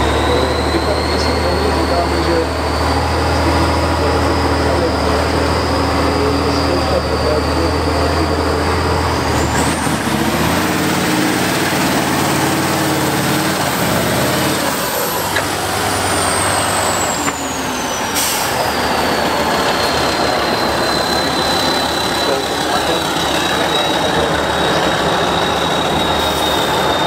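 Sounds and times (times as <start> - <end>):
high whistle: 0.0 - 8.8, 16.0 - 27.0
diesel truck engine working hard: 0.0 - 27.0.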